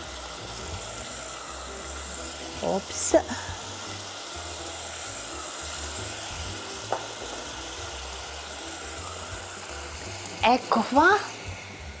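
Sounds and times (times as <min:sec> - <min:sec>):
vegetables sizzling in pot: 0:00.0 - 0:12.0.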